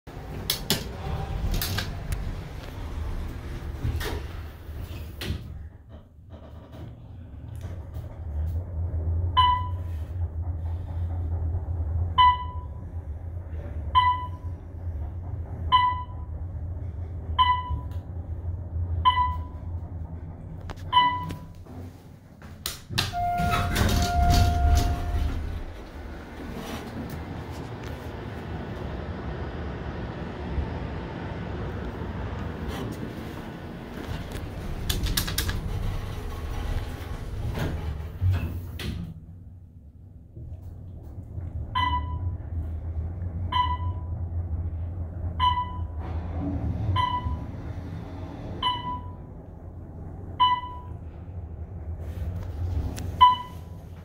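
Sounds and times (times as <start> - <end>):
elevator doors closing: 0.1 - 54.0
elevator low hum: 0.1 - 54.0
elevator chime ping: 9.4 - 10.0, 12.2 - 12.8, 14.0 - 14.6, 15.7 - 16.4, 17.4 - 18.0, 19.0 - 19.7, 20.9 - 21.5, 23.1 - 25.6, 41.8 - 42.5, 43.5 - 44.2, 45.4 - 46.0, 48.6 - 49.3, 50.4 - 51.0, 53.2 - 53.8.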